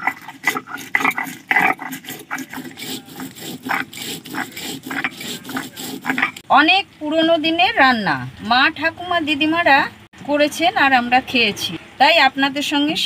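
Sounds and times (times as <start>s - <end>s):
stone roller scraping grinding stone: 0.0s - 6.5s.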